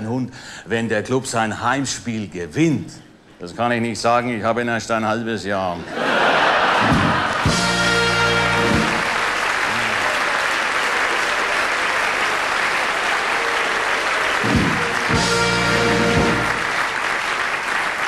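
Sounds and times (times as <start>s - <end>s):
audience applauding: 6.1s - 18.0s
band music: 6.7s - 9.9s, 14.1s - 17.0s.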